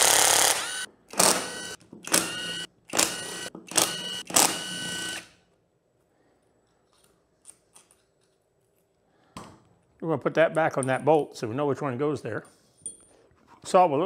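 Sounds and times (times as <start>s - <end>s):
impact wrench motor whine: 0.0s - 5.3s.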